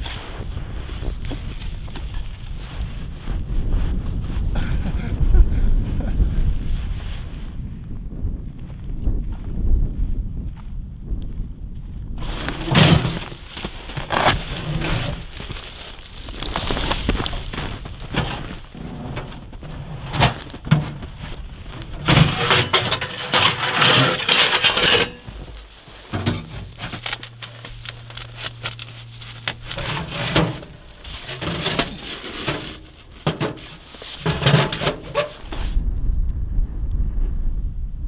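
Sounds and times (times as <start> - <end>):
crunching snow: 0.0 - 5.2, 12.2 - 35.8
wind buffeting microphone: 0.0 - 22.1, 35.1 - 38.0.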